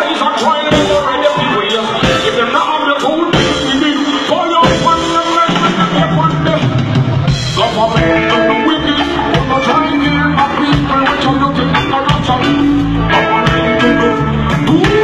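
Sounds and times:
bass line: 0.0s - 15.0s
drum kit: 0.0s - 15.0s
live band music: 0.0s - 15.0s.

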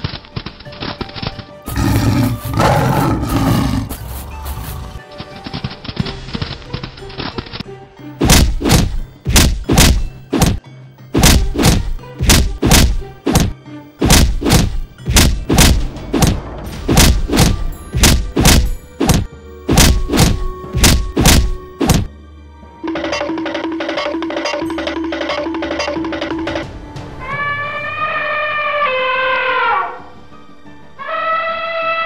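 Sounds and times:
background music: 0.0s - 32.0s
cartoon fight impact thuds: 8.2s - 10.6s, 11.2s - 22.1s.

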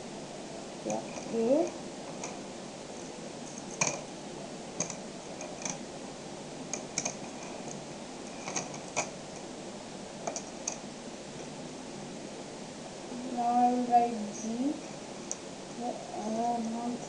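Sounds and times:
faint hiss: 0.0s - 17.0s
magnetic balls clicking: 4.8s - 5.8s, 6.7s - 7.8s, 10.2s - 10.8s.

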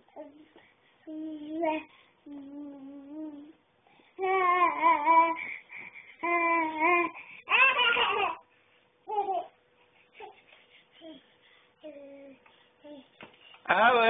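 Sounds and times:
baby babbling: 4.2s - 5.4s, 6.2s - 8.4s, 9.1s - 9.6s.

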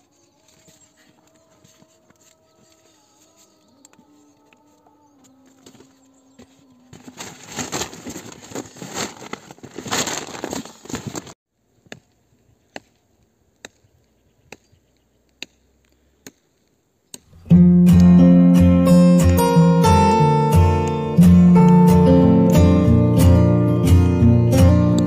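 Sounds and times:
strummed acoustic guitar music: 17.4s - 25.0s.

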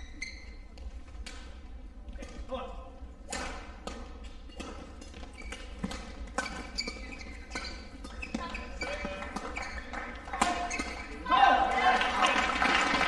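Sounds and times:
shoe squeaks on court floor: 0.0s - 1.0s, 4.2s - 11.2s
racket hitting shuttlecock: 3.3s - 11.1s.

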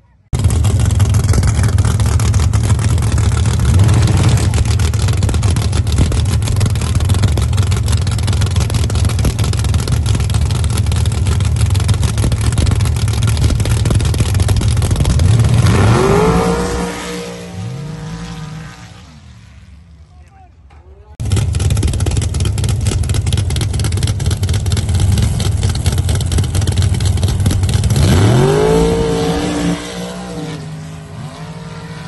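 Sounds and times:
race engine revving and pulling away: 0.4s - 20.0s, 21.2s - 32.0s.

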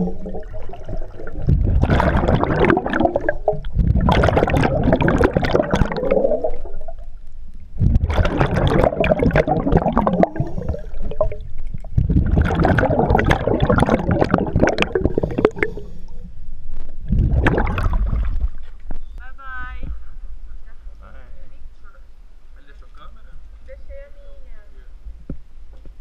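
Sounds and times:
scuba regulator bubbles gurgling: 0.0s - 7.2s, 7.8s - 16.2s, 17.0s - 18.6s.

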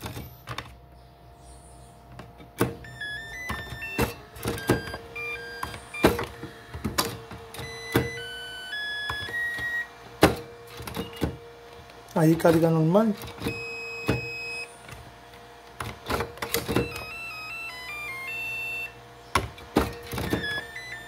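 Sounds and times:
battery charger beeping jingle: 2.8s - 10.0s, 10.9s - 11.4s, 13.4s - 14.8s, 16.6s - 21.0s.

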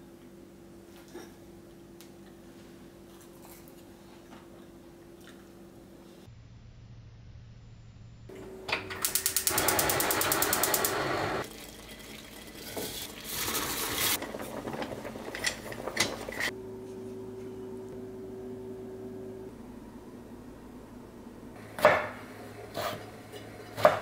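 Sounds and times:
steady low hum: 14.2s - 23.9s.

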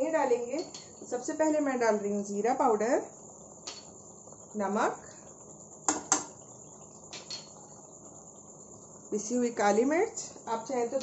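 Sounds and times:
spoon clicks and taps: 7.1s - 7.6s.

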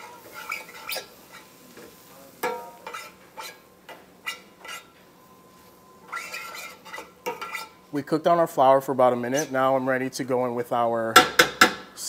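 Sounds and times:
metal tongs clinking on a pan: 2.4s - 3.6s.

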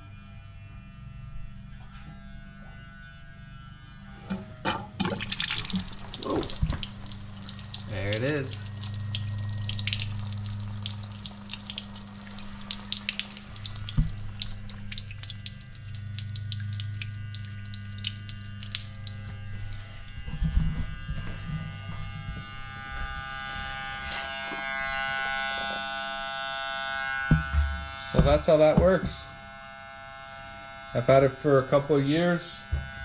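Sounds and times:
electric pump motor humming: 4.1s - 33.0s
water splashing: 5.0s - 19.9s.

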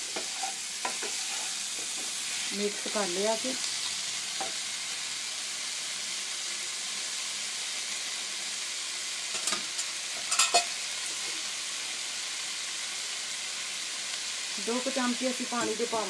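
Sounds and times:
wooden spoon scraping a pan: 0.0s - 2.9s
food sizzling in a pan: 0.0s - 16.0s.

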